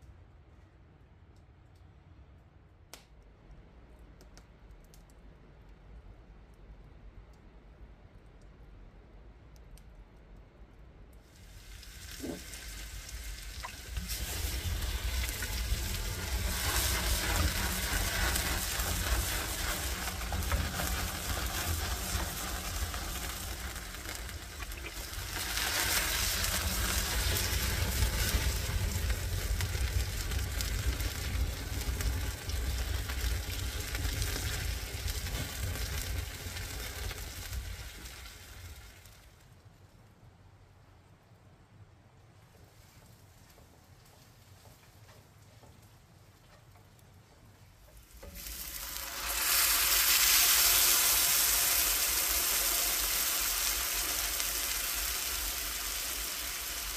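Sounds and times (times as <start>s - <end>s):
onions sizzling in oil: 11.3s - 39.2s, 48.0s - 56.9s.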